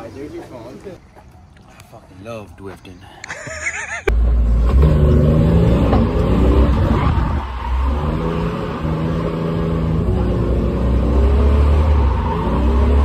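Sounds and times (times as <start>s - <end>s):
car engine revving hard: 4.1s - 13.0s.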